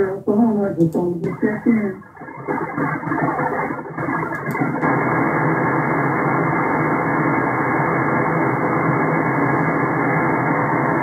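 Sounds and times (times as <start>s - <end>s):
radio voice: 0.0s - 2.0s
radio static hiss: 0.0s - 11.0s.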